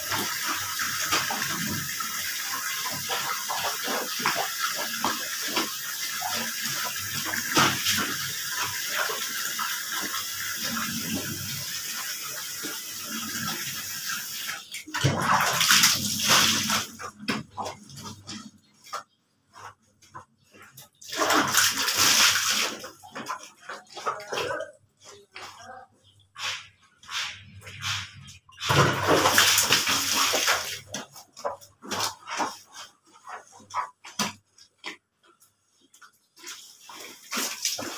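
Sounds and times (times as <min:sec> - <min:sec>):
water splashing onto wet clothes: 0:00.0 - 0:17.8, 0:21.0 - 0:24.8, 0:27.2 - 0:32.7, 0:36.4 - 0:37.9.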